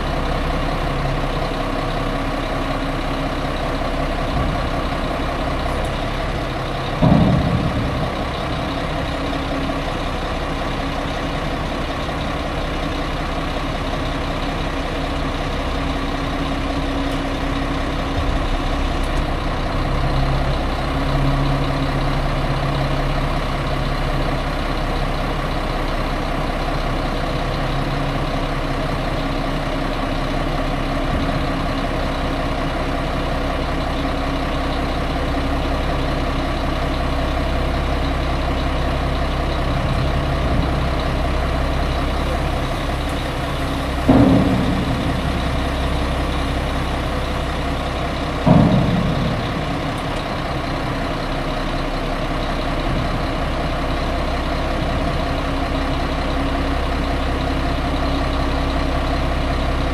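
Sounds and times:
diesel engine running: 0:00.0 - 0:59.9
loud knocks: 0:06.8 - 0:09.6, 0:42.3 - 0:51.2.

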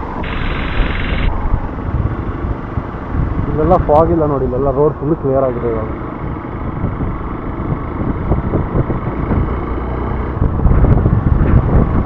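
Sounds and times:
motorcycle engine running: 0:00.0 - 0:03.4, 0:05.8 - 0:12.0
wind buffeting microphone: 0:00.0 - 0:04.7, 0:05.8 - 0:12.0.

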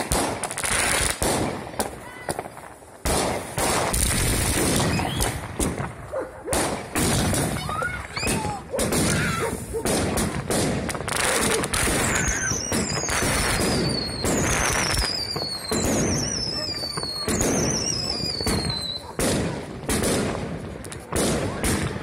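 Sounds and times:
fireworks bangs and pops: 0:00.0 - 0:22.0
fireworks falling whistles: 0:03.4 - 0:05.8, 0:06.6 - 0:10.0, 0:10.9 - 0:19.2.

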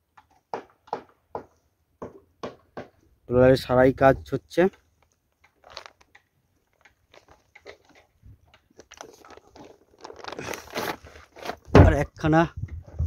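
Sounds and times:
crunchy crackling of gear: 0:04.7 - 0:11.7.

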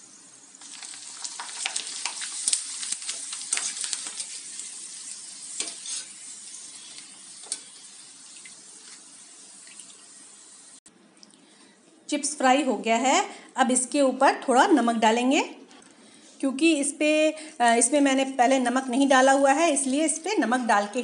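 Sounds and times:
oil sizzling and crackling: 0:00.0 - 0:10.9
skimmer stirring chips: 0:00.6 - 0:07.8.

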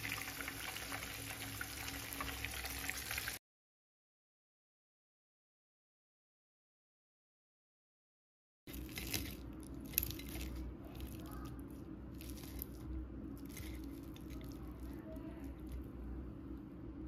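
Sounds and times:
crunchy fish crust crackling: 0:08.7 - 0:16.0
steady low hum: 0:08.7 - 0:17.0.

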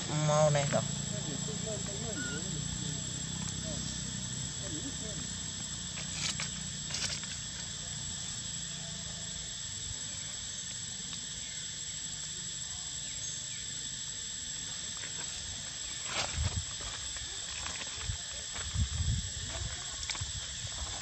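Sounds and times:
insects droning: 0:00.0 - 0:21.0.

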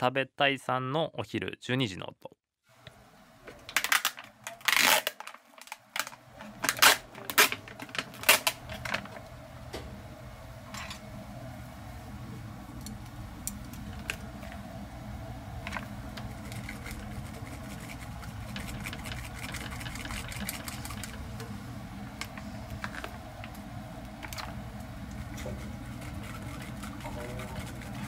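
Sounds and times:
steady low hum: 0:02.7 - 0:28.0
utensil scraping against a pot: 0:16.2 - 0:21.2, 0:25.1 - 0:28.0.

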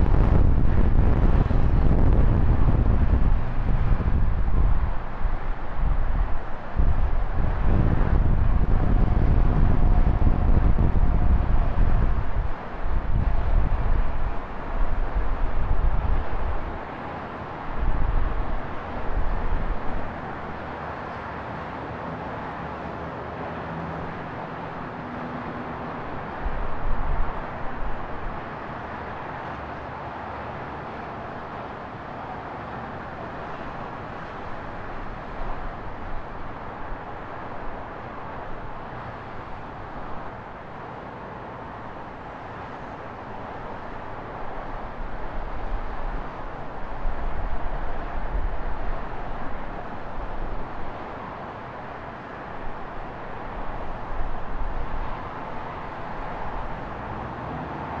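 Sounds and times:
wind buffeting microphone: 0:00.0 - 0:16.8
traffic and street noise: 0:00.0 - 0:58.0.

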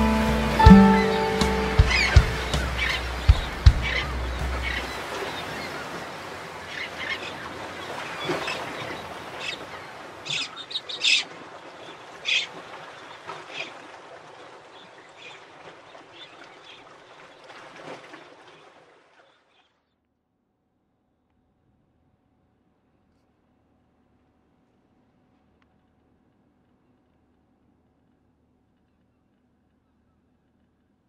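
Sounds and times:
gulls calling: 0:00.0 - 0:17.5.

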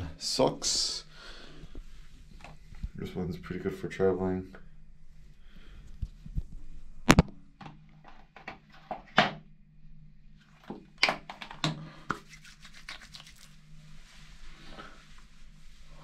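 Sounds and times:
hands rubbing through hair: 0:12.0 - 0:16.0.

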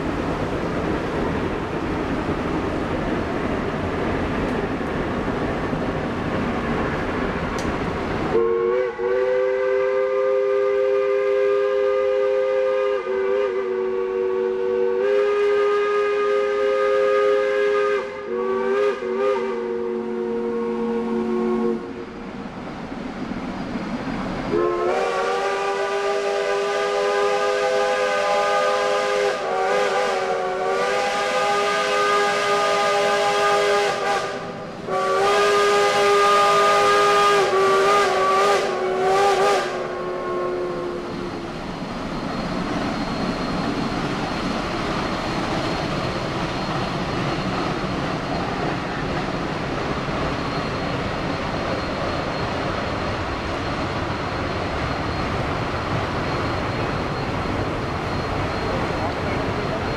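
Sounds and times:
steam locomotive whistle blasts: 0:08.3 - 0:22.0, 0:24.4 - 0:41.4.

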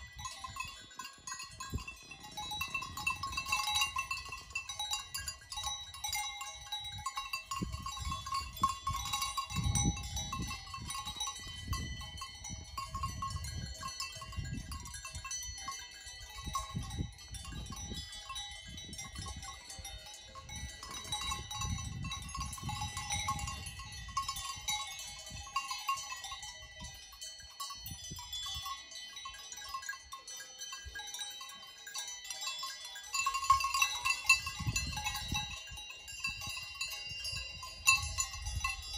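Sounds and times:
livestock bells ringing: 0:00.0 - 0:38.9.

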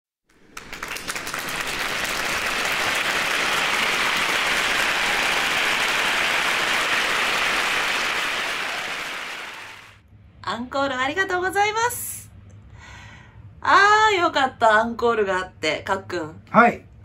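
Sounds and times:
crowd applause: 0:00.3 - 0:10.0.

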